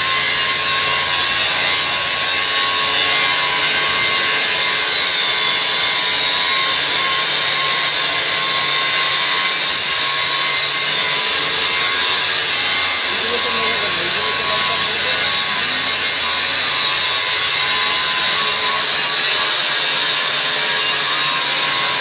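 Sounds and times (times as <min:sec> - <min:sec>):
angle grinder grinding steel: 0:00.0 - 0:22.0.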